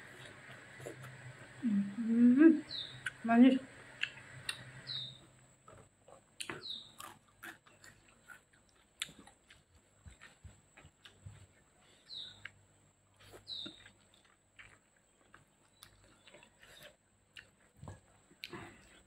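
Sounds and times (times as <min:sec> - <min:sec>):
tearing chicken and chewing: 0:06.7 - 0:10.4.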